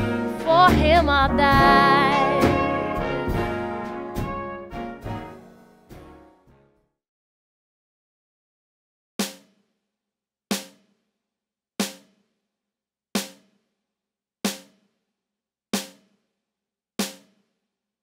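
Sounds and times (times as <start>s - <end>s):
drum hits: 0.0s - 4.6s.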